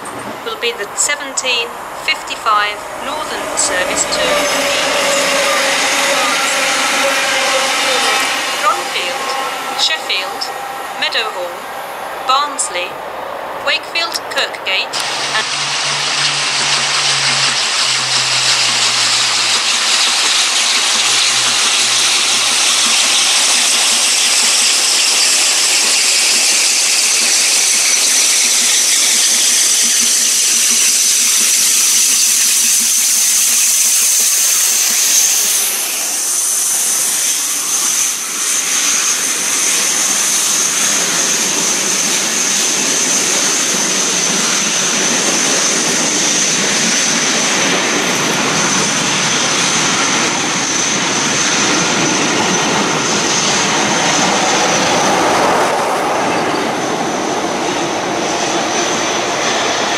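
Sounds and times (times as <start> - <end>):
steam train rushing past: 0.0 - 59.9
high-pitched ring: 2.2 - 11.8.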